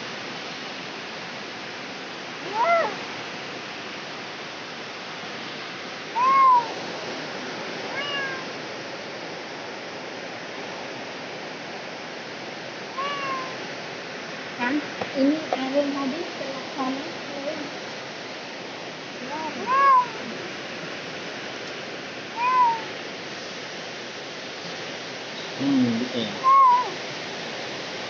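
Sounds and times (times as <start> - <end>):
steady hiss: 0.0 - 28.0
cat meowing: 2.4 - 3.0, 6.1 - 6.8, 7.9 - 8.5, 12.9 - 13.6, 19.3 - 20.4, 22.3 - 22.9, 26.4 - 27.0.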